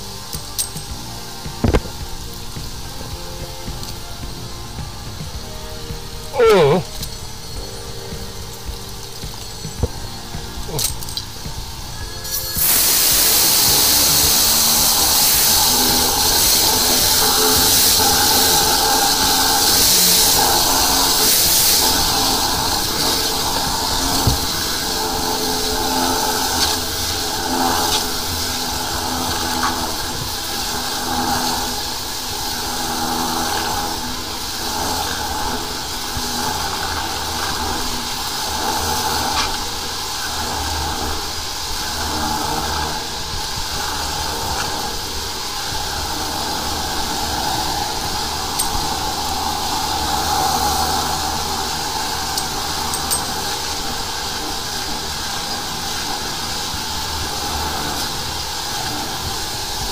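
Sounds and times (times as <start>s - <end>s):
engine and pump hum: 0.0s - 59.9s
water jet hissing and rushing: 0.0s - 59.9s.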